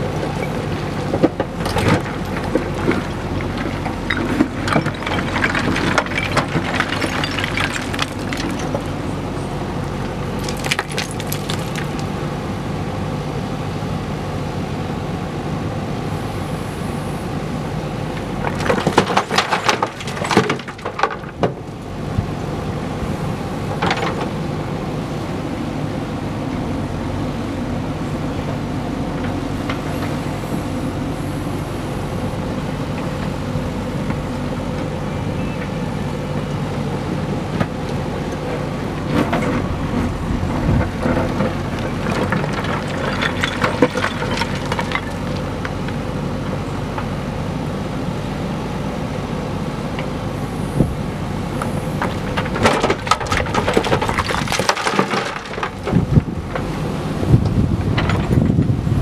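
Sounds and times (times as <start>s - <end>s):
diesel engine running: 0.0s - 59.0s
stones clattering and scraping: 0.3s - 9.0s, 10.4s - 12.1s, 39.1s - 45.5s, 52.0s - 56.3s.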